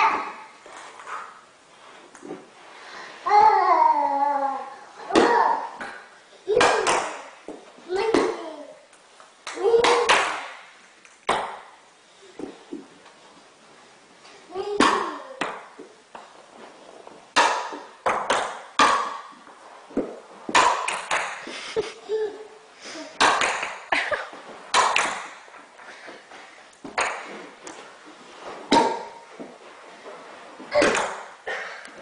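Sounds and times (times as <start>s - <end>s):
balls clattering on hard floor: 17.3s - 21.6s, 26.8s - 29.7s.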